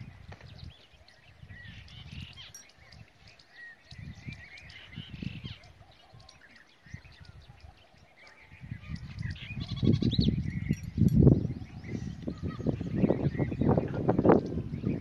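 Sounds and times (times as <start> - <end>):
small birds chirping: 0.0 - 15.0
wind gusting on microphone: 0.0 - 15.0.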